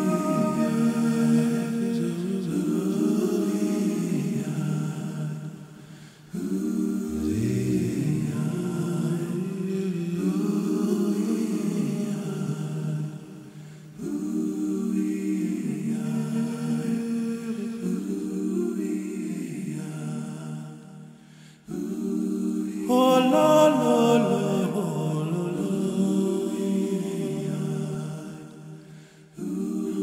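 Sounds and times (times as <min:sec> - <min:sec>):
higher voice singing: 0:00.0 - 0:05.4, 0:06.3 - 0:13.0, 0:21.7 - 0:28.5
voices singing a cappella chords: 0:00.0 - 0:30.0.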